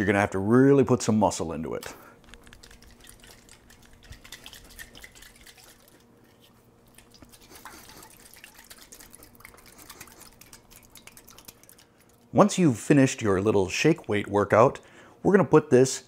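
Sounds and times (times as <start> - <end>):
steady low hum: 0.0 - 16.0
liquid sloshing in metal siphon: 2.6 - 12.3.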